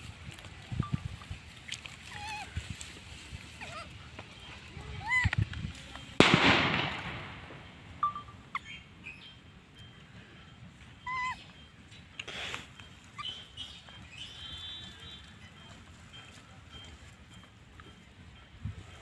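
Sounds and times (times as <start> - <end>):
small birds chirping: 7.6 - 18.8.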